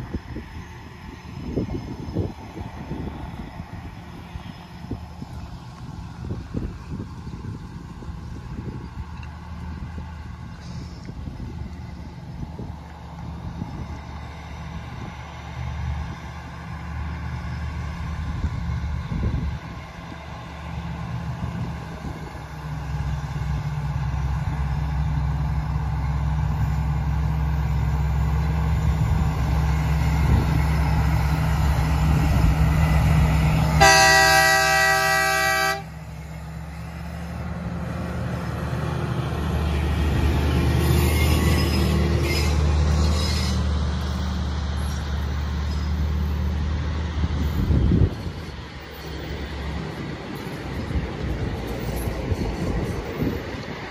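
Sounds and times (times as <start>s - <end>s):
diesel locomotive engine: 0.0s - 53.9s
train wagons rolling on track: 0.0s - 53.9s
locomotive horn blast: 33.7s - 36.1s, 40.8s - 43.6s.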